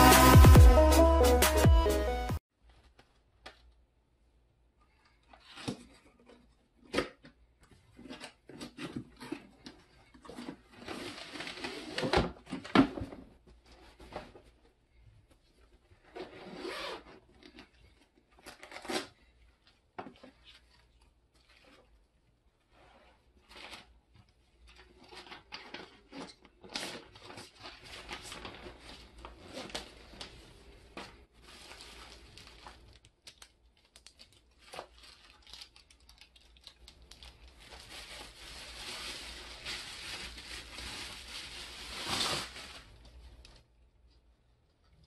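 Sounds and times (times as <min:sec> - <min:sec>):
plastic wrap crinkling: 0:24.6 - 0:43.7.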